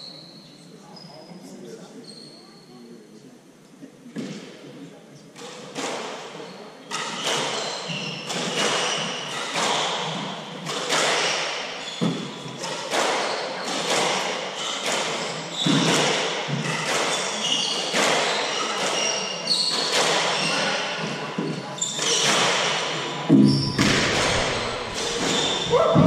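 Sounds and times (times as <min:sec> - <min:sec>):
shoe squeaks: 0:02.0 - 0:02.8, 0:06.4 - 0:10.6, 0:11.2 - 0:12.7, 0:14.5 - 0:26.0
squash ball hitting racquets and walls: 0:06.9 - 0:26.0.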